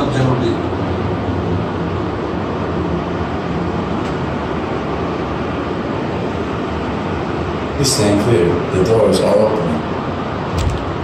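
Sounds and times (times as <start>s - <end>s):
people mover rumble and hiss: 0.0s - 11.0s.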